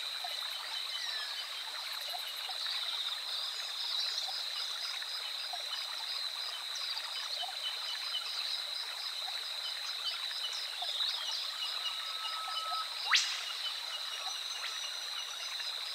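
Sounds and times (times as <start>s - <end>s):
high-pitched insect drone: 11.3s - 15.5s
held whistle: 12.0s - 12.9s.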